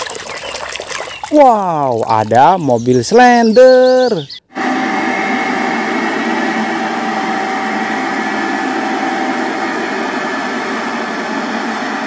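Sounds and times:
road roller engine running: 4.5s - 12.0s.

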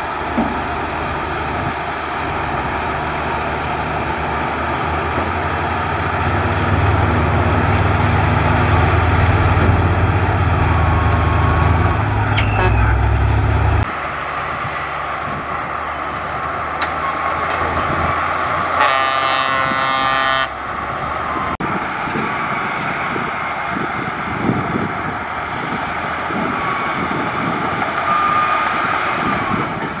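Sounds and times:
heavy diesel engines running: 0.0s - 30.0s
vehicle horn: 12.2s - 13.2s, 18.8s - 20.6s.

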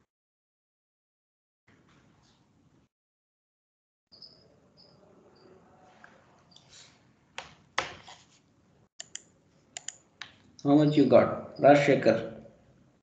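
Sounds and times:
computer mouse clicks: 9.0s - 10.4s.

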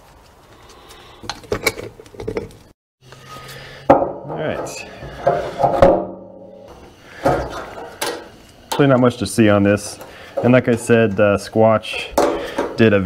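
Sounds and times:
metal cap clanking and scraping: 3.2s - 13.0s.

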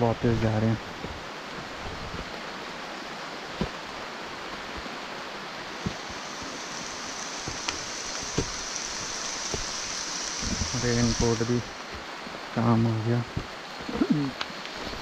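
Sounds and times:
heavy rain on foliage: 0.0s - 15.0s
thin high hiss: 5.9s - 12.0s.

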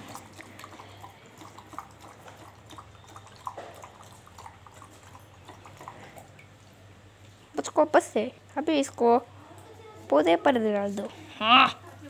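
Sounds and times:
dog lapping water: 0.0s - 6.6s.

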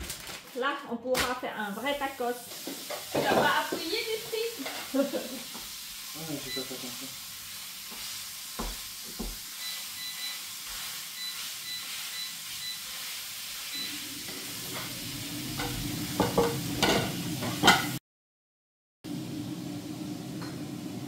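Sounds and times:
food sizzling in a frying pan: 1.2s - 18.0s, 19.1s - 21.0s
spatula stirring: 7.4s - 15.0s
plates clattering on wooden table: 15.6s - 18.0s.

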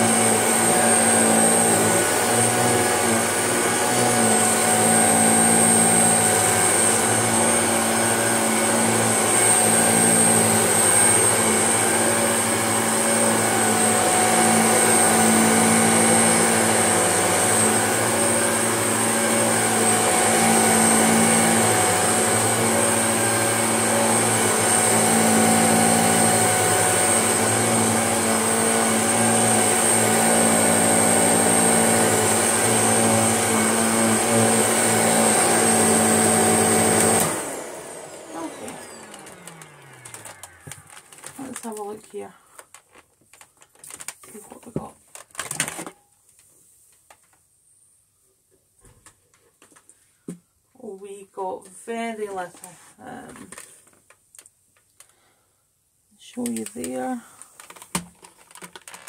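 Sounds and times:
upright vacuum cleaner running: 0.0s - 42.2s.

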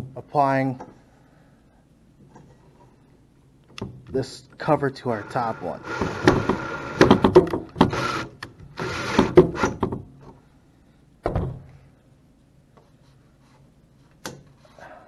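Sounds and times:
cordless drill driving screw: 5.1s - 7.2s, 7.8s - 9.8s.

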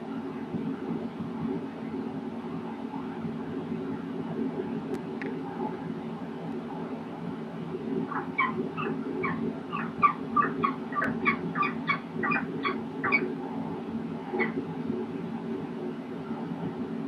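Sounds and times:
steady low hum: 0.0s - 17.0s
falcon calling: 8.1s - 13.3s, 14.4s - 14.6s.

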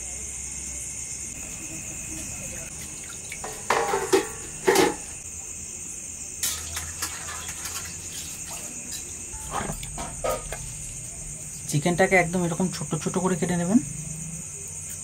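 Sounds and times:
crickets chirping: 0.0s - 15.0s
steel bowls clattering: 3.4s - 5.2s, 6.4s - 11.4s.

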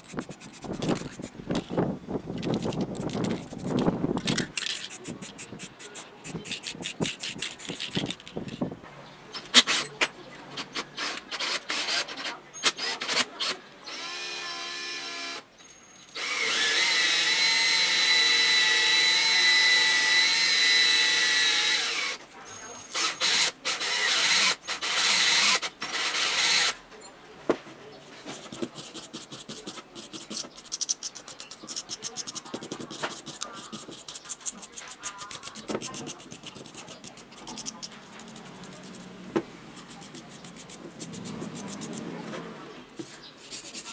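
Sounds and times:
sandpaper rubbing on metal: 0.0s - 1.4s, 2.5s - 8.2s, 28.2s - 39.1s, 39.7s - 42.1s, 43.0s - 43.9s.

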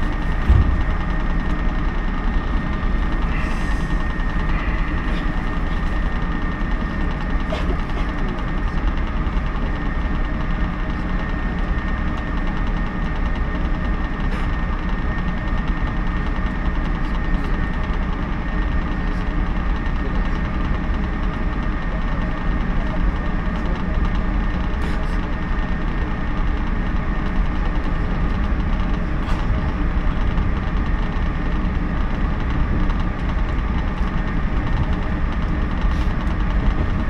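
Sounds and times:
electric train accelerating: 0.0s - 7.4s.

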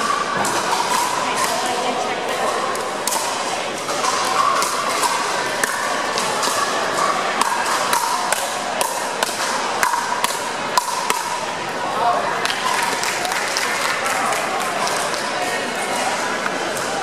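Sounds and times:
paddles hitting plastic ball: 7.4s - 11.4s.

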